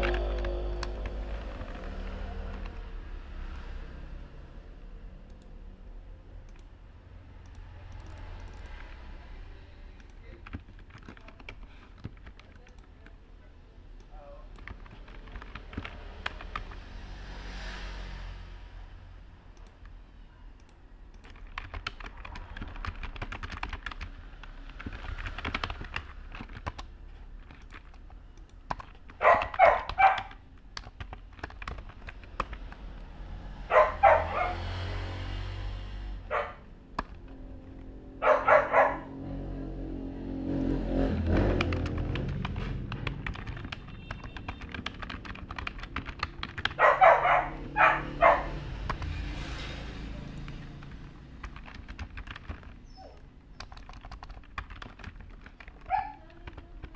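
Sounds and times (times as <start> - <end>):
computer keyboard typing: 0.0 - 3.7, 6.4 - 6.8, 7.4 - 9.1, 10.0 - 13.2, 14.0 - 16.9, 19.5 - 20.0, 20.6 - 34.1, 36.9 - 37.9, 40.6 - 56.9
dog barking: 29.2 - 30.4, 33.7 - 34.7, 36.3 - 36.7, 38.2 - 39.2, 46.8 - 48.6, 55.9 - 56.2.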